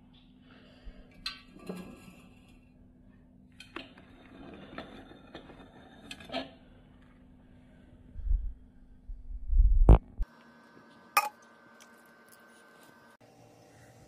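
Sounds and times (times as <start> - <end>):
steady low hum: 6.5 - 14.0.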